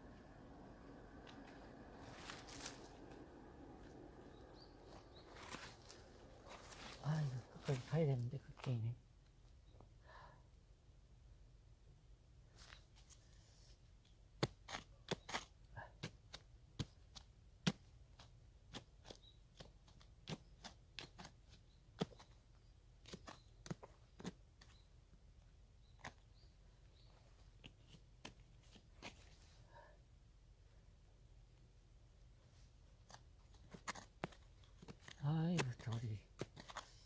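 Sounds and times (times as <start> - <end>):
hand pick chipping soil: 14.3 - 24.9, 27.5 - 29.4, 33.0 - 37.0.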